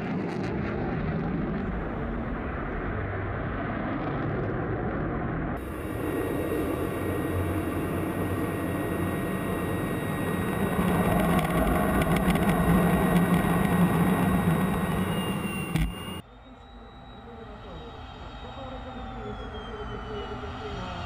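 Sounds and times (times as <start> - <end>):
jet engine and rushing air: 5.6 - 16.2.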